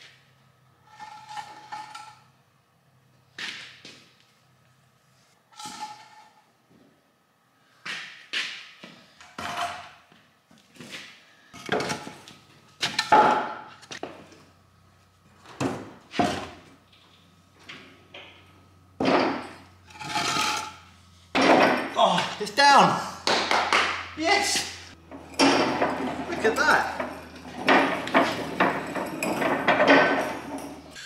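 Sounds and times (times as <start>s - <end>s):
man grunting: 21.9s - 23.2s.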